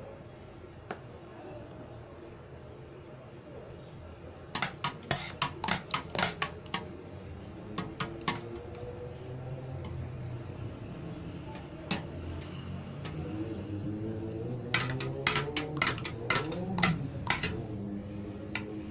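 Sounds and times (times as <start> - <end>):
spoon clinking against metal bowl: 4.6 - 6.9, 14.7 - 17.7.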